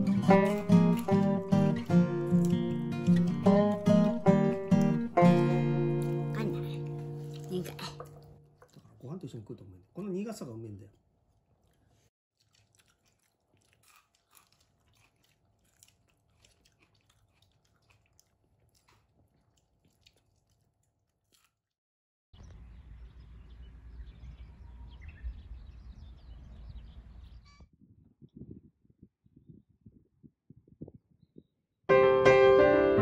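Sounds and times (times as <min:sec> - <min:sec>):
chewing: 0:00.2 - 0:09.3, 0:10.8 - 0:21.7.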